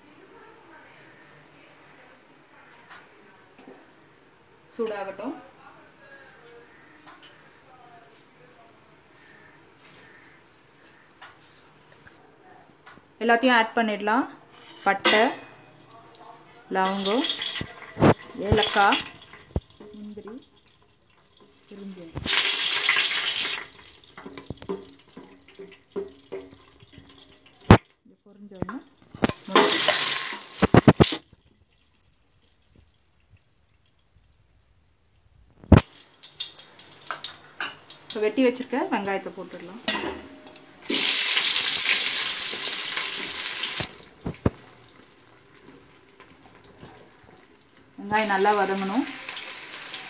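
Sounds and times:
spoon stirring and scraping: 14.5s - 15.8s
spices sizzling in hot oil: 14.5s - 50.0s.

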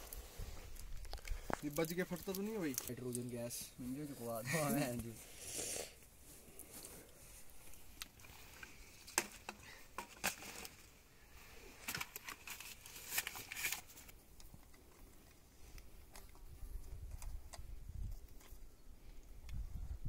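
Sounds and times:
crinkling rustle: 0.0s - 5.2s, 6.2s - 18.7s.

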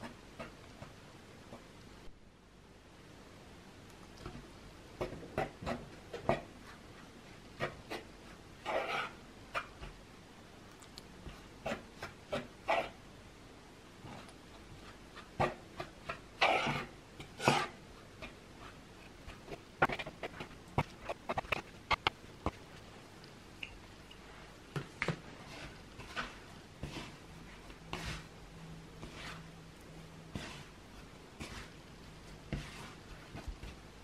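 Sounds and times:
metal utensil scraping wooden bowl: 8.6s - 9.2s, 16.4s - 17.8s, 19.8s - 22.1s, 30.3s - 30.7s.

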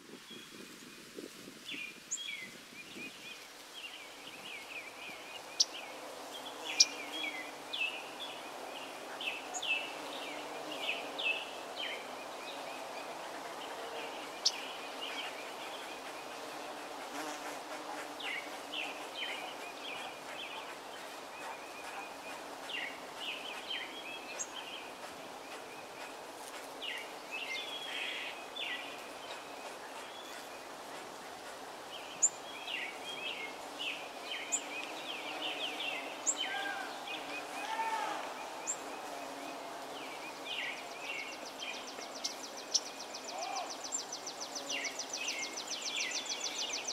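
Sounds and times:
birds chirping: 0.3s - 46.9s
bees buzzing: 12.8s - 26.8s.

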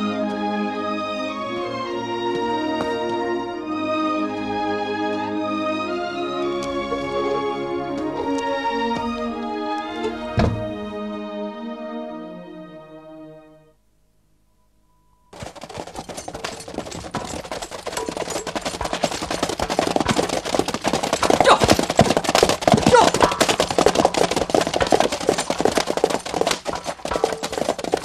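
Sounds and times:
horses galloping: 15.3s - 28.0s.

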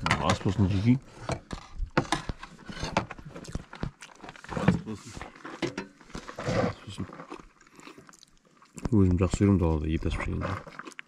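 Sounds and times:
person chewing food: 3.2s - 4.6s, 5.2s - 11.0s.

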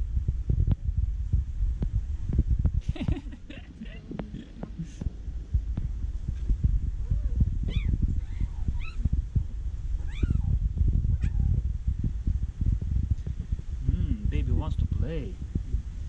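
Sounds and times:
steady low rumble: 0.0s - 16.0s
cat meowing: 7.7s - 9.0s, 10.0s - 10.5s.

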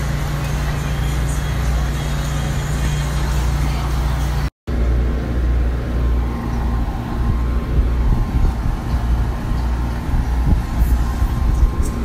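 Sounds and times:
low engine hum: 0.0s - 12.0s.

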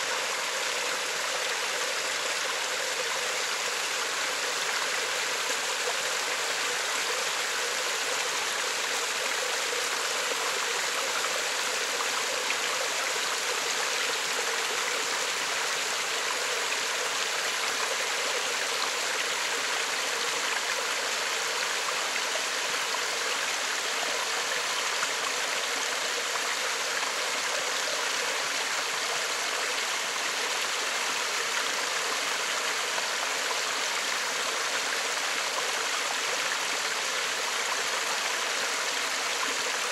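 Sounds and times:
stream flowing and splashing: 0.0s - 39.9s.

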